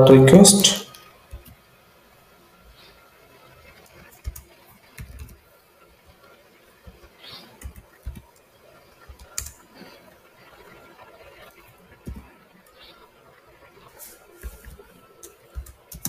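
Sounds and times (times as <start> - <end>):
keyboard typing clicks: 9.1 - 9.5, 15.5 - 16.0.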